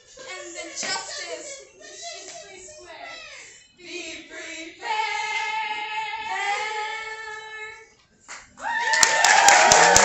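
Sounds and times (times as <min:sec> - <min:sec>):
young performers singing together: 0:03.8 - 0:07.8
audience cheering and applause: 0:08.6 - 0:10.0.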